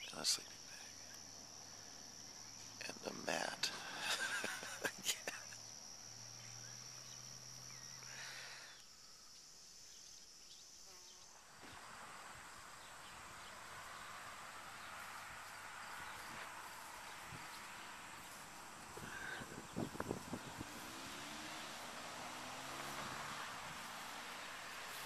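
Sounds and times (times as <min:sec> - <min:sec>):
soft even hiss: 0:00.0 - 0:25.0.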